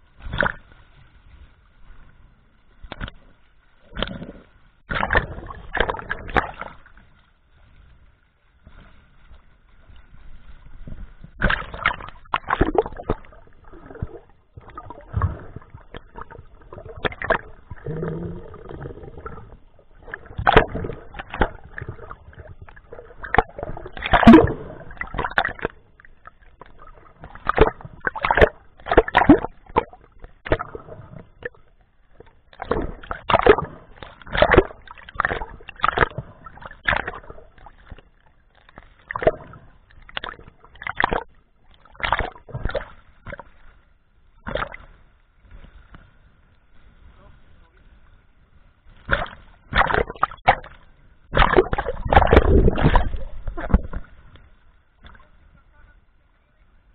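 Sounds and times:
underwater bubbling and sloshing: 0.0 - 56.9
scuba exhaust bubbles gurgling: 3.8 - 6.9, 11.3 - 38.0, 49.1 - 54.1.

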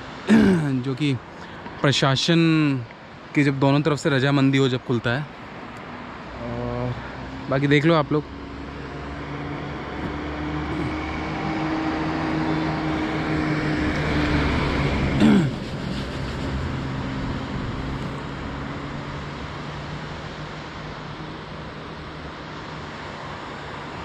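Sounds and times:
motor vehicle passing by: 5.6 - 24.0.

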